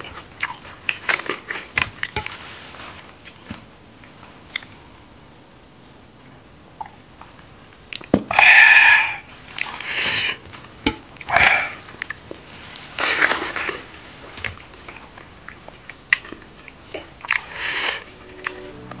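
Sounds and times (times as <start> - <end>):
chewing smacks: 0.0 - 2.3, 11.2 - 18.1.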